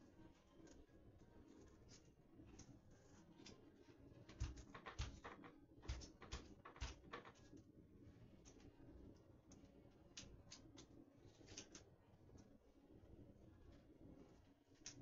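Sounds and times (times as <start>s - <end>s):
paper shade knocking and clicking: 4.2s - 7.6s.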